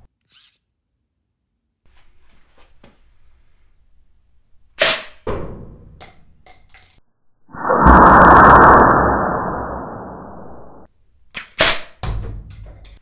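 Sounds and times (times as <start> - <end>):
pneumatic blast: 4.8 - 5.2, 11.4 - 11.9
muffled sustained rushing: 7.5 - 10.8.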